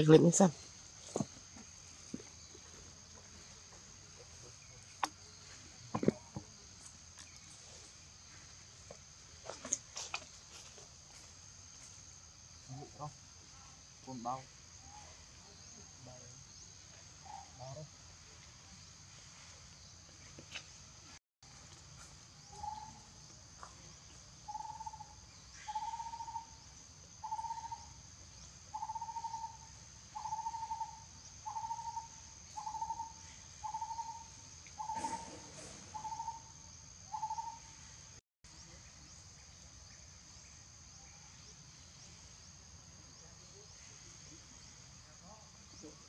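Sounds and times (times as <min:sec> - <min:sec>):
bird hooting: 0:24.5 - 0:26.5, 0:27.2 - 0:27.9, 0:28.8 - 0:29.6, 0:30.2 - 0:36.5, 0:37.1 - 0:37.7
high-pitched insect drone: 0:24.5 - 0:38.0.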